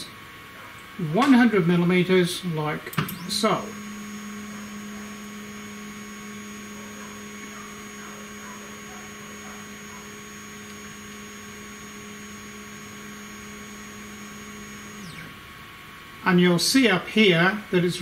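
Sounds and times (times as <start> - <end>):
stepper motor humming: 2.8 - 15.6.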